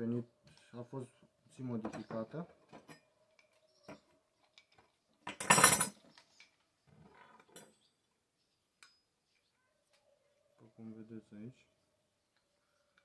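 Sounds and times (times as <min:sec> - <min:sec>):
metal hardware clinking and rattling: 0:04.6 - 0:06.1.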